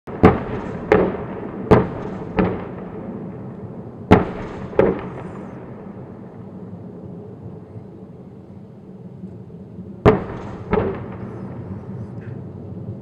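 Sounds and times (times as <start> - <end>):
artillery booms with echo: 0.1 - 6.4, 10.0 - 11.8.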